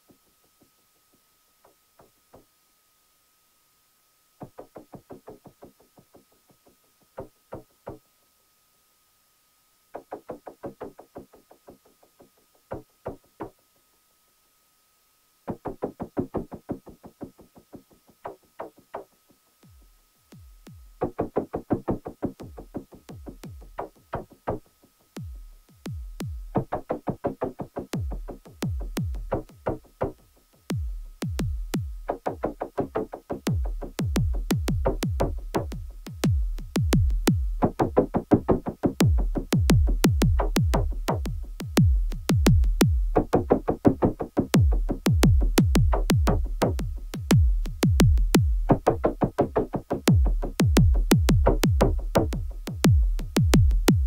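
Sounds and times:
hi-hat ticks: 18.2 - 54.0
drum machine kick: 19.6 - 24.6, 25.2 - 54.0.

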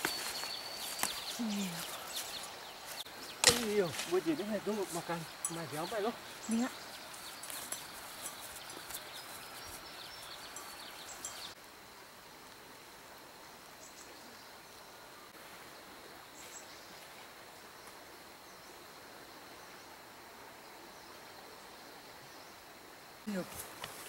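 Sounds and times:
high insect tone: 0.0 - 12.5
steady hiss: 0.0 - 24.0.

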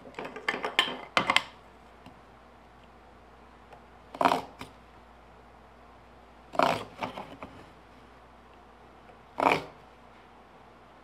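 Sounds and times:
knife scraping along wood: 6.6 - 7.4, 9.4 - 9.8.

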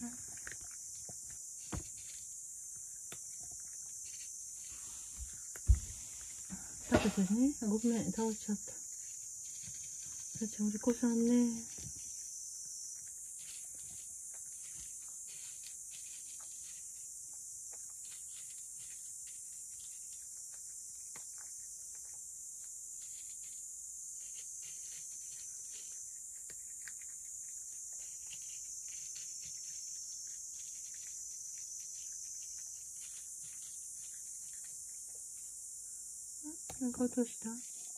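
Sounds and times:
cat crunching dry kibble: 0.2 - 4.3, 24.3 - 35.2.

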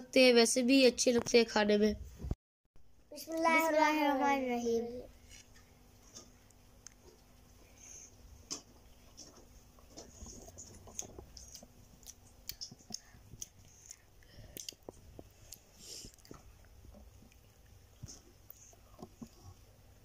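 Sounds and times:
children chewing food: 5.1 - 20.0.

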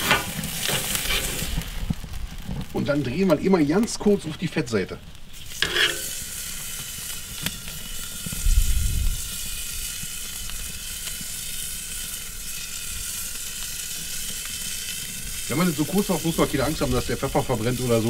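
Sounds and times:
meat sizzling on a grill: 0.0 - 18.0
low rumble: 8.4 - 9.3.

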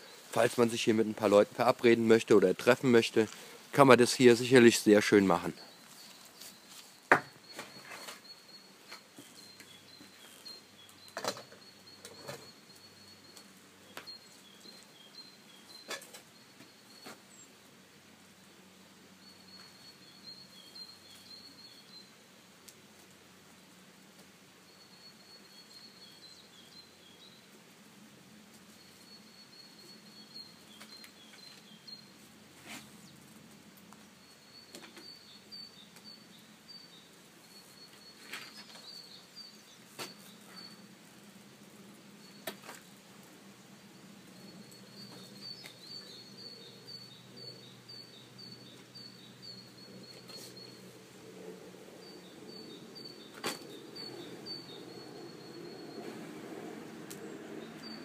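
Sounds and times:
songbird chirping: 0.0 - 58.0
road traffic rumble: 48.7 - 58.0.

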